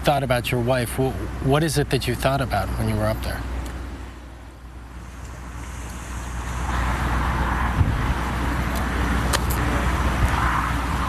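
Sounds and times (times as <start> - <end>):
traffic engine hum: 0.0 - 11.0
vehicle passing: 4.0 - 11.0.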